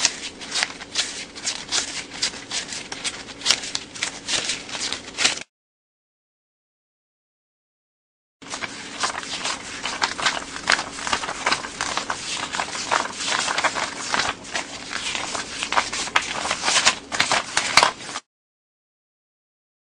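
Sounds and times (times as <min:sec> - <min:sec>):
banknotes being counted by hand: 0:00.0 - 0:05.5, 0:08.4 - 0:18.2.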